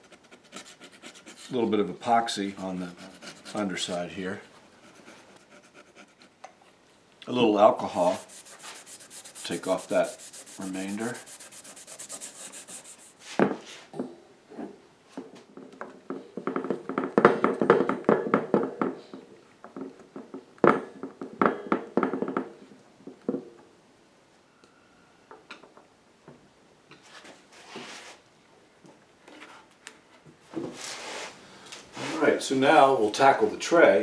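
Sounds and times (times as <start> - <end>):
pad rubbing tabletop: 7.9 - 13.4.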